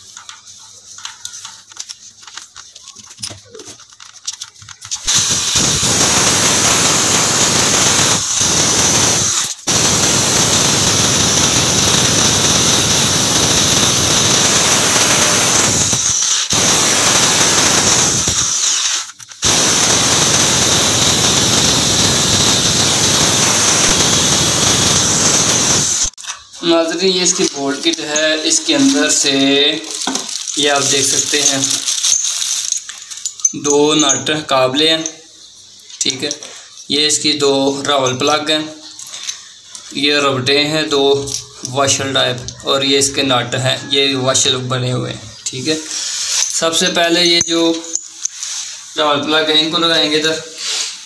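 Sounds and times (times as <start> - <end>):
hammer drill boring into tile: 5.0 - 26.2.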